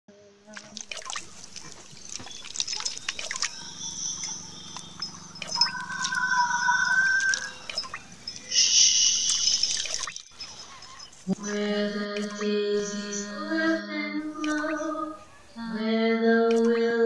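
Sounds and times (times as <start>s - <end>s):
water trickling and dripping: 0.5s - 11.1s, 14.4s - 14.8s
high steady whistling tones: 2.0s - 11.7s.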